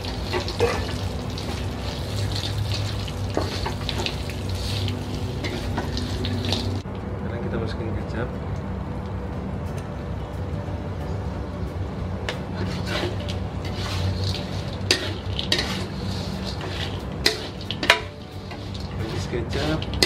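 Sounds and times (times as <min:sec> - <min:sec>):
food frying: 0:00.0 - 0:06.8, 0:12.6 - 0:20.0
metal spatula scraping wok: 0:00.0 - 0:06.8, 0:12.5 - 0:20.0
low hum: 0:00.0 - 0:20.0.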